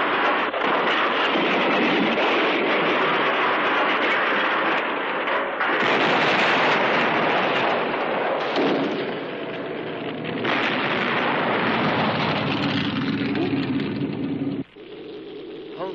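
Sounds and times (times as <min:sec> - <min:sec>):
explosion roar: 0:05.6 - 0:15.9.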